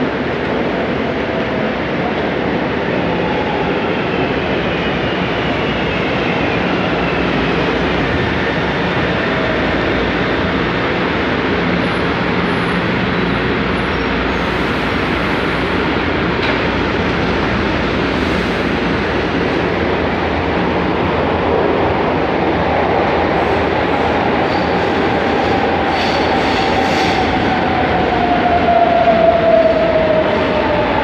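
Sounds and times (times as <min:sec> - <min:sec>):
train wheels rumbling on rail: 0:00.0 - 0:31.0.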